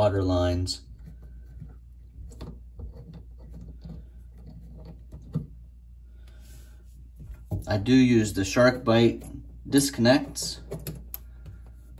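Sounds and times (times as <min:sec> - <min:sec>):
metal rubbing and small clicks: 0:00.8 - 0:05.8, 0:08.4 - 0:11.9.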